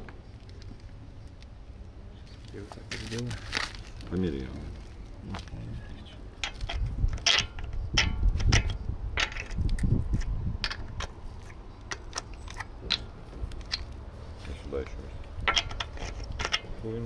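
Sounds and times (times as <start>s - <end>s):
metal socket clinking on wheel bolts: 6.4s - 14.0s, 14.8s - 16.8s.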